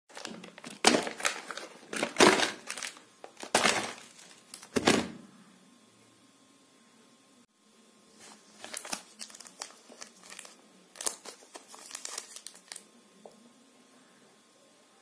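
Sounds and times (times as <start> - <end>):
plastic snack wrappers crinkling: 0.1 - 5.0, 8.2 - 12.9.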